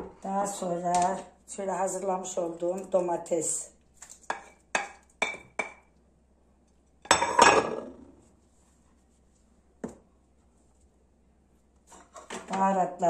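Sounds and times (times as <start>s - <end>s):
plate clattering on counter: 7.1s - 8.0s.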